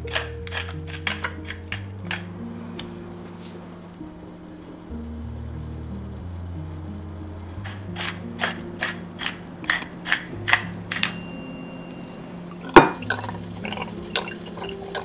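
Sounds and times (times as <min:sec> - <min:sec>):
pepper mill grinding: 0:00.0 - 0:02.3, 0:07.6 - 0:11.1
background music: 0:00.0 - 0:15.0
bell-like chime: 0:10.9 - 0:12.4.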